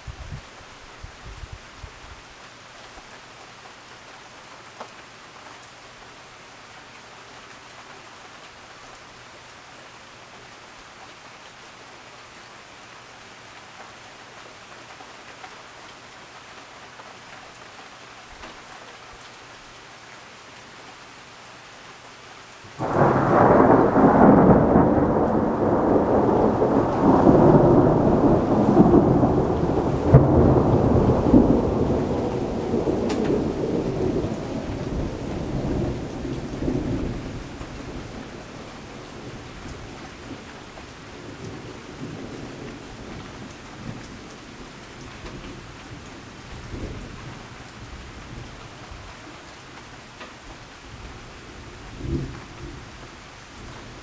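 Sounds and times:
rain hissing: 21.4 - 54.0
thunder rumbling: 22.8 - 40.6.

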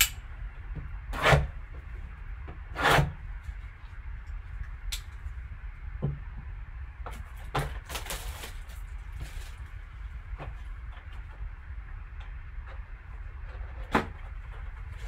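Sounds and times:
plastic and cardboard rustling: 7.1 - 11.4.

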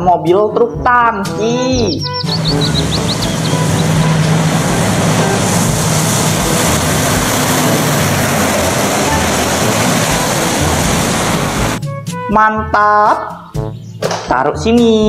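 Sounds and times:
truck engine rumble: 2.1 - 11.8.

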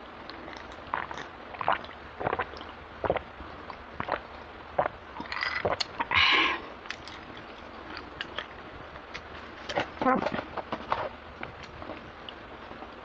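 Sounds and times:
person gulping drink: 0.3 - 8.5.

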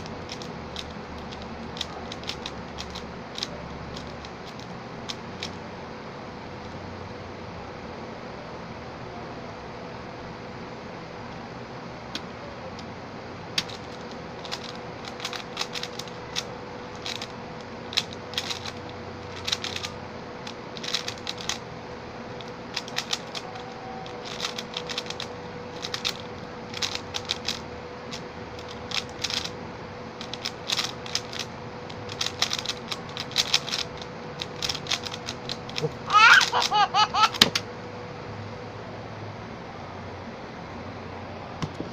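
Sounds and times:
puzzle cube layers clicking: 0.0 - 5.6, 13.6 - 17.3, 17.9 - 19.9, 20.8 - 21.6, 22.4 - 29.5, 30.2 - 36.7.

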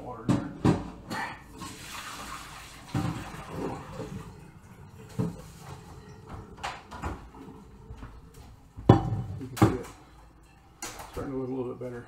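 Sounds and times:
water pouring into a sink: 1.5 - 7.0
pot knocking: 8.8 - 9.8.

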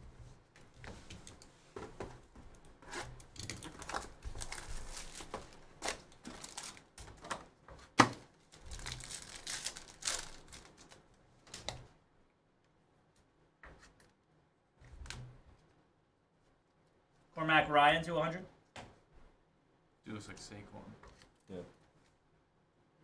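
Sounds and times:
foil wrappers crinkling and tearing: 3.4 - 7.3, 8.4 - 11.0.

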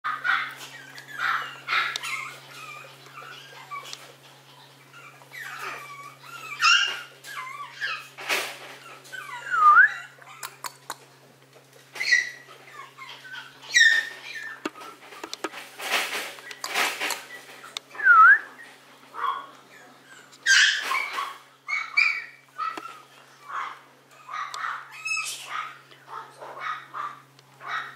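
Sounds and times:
puppy whimpering and yipping: 0.3 - 8.2, 8.8 - 10.7, 12.0 - 14.9, 18.5 - 25.3.

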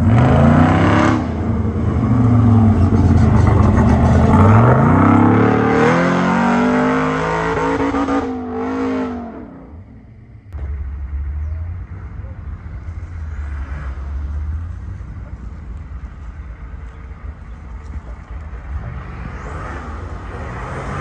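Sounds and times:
truck engine revving hard: 0.0 - 9.8, 18.8 - 21.0.

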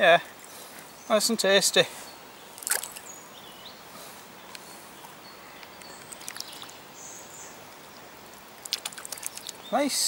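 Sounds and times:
outdoor background noise: 0.0 - 10.0
water sloshing: 2.6 - 3.1, 6.0 - 6.8, 8.6 - 9.7.

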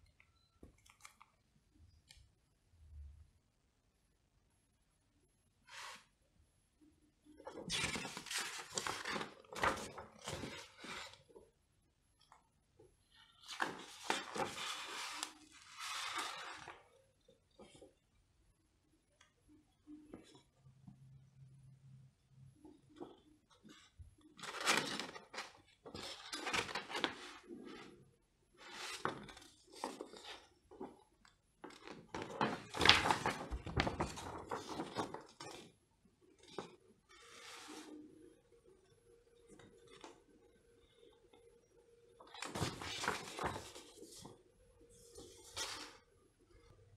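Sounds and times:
paper rustling and crinkling: 7.4 - 11.3, 13.3 - 16.8, 23.7 - 28.0, 28.6 - 31.0, 31.6 - 35.7, 42.2 - 44.4, 45.0 - 46.0.

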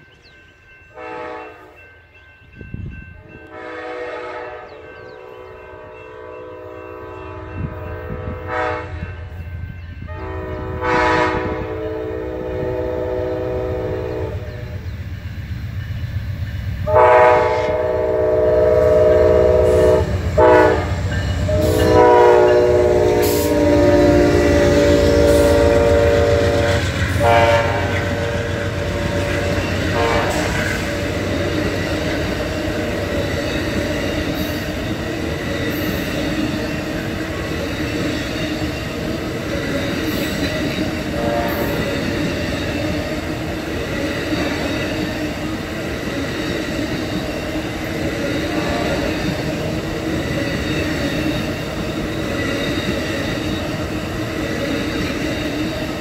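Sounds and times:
low rumble of train: 0.0 - 56.0
train air horn blasts: 1.0 - 1.7, 3.5 - 9.4, 10.1 - 14.8, 16.8 - 30.9, 41.1 - 42.1, 48.5 - 49.2.

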